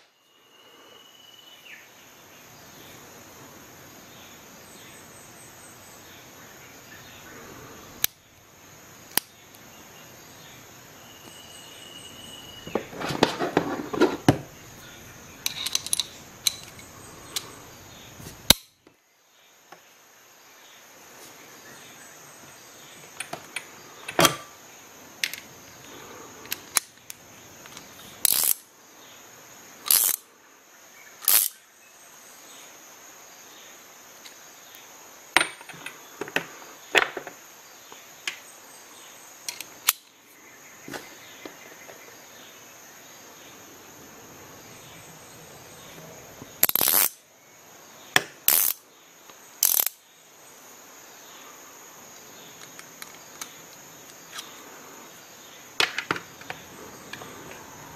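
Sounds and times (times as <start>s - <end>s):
metal tools clicking and clinking: 15.4s - 17.5s, 28.3s - 28.6s, 49.6s - 50.0s.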